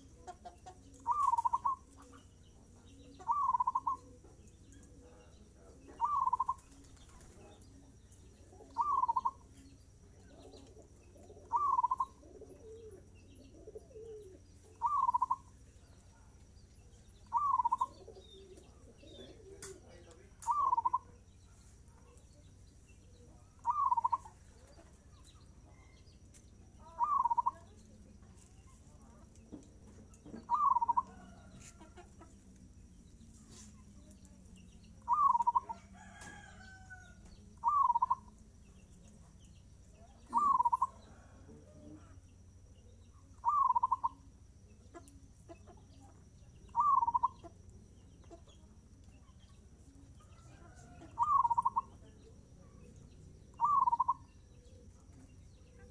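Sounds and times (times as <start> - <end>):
dove cooing: 0.0 - 7.5, 8.4 - 15.5, 17.3 - 21.2, 23.3 - 24.4, 26.8 - 27.7, 30.3 - 31.4, 35.0 - 36.8, 37.6 - 38.3, 40.0 - 42.2, 43.4 - 44.2, 46.7 - 47.4, 50.6 - 51.9, 53.5 - 54.9.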